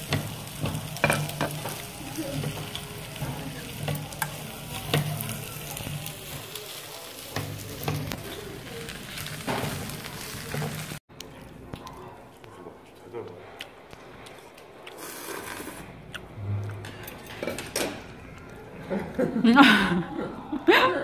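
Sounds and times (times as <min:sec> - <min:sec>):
food sizzling: 0:00.0 - 0:11.0
spoon and chopsticks clinking bowls: 0:00.1 - 0:06.5.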